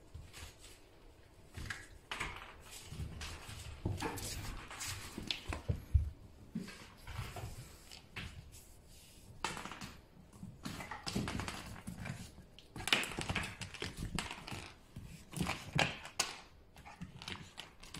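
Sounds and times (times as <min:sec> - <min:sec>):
puppy scuffling on hard floor: 0:00.1 - 0:08.8.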